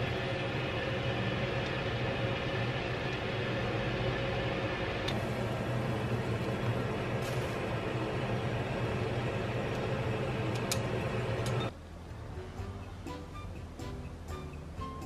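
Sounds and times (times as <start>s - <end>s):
water boiling hard: 0.0s - 11.7s.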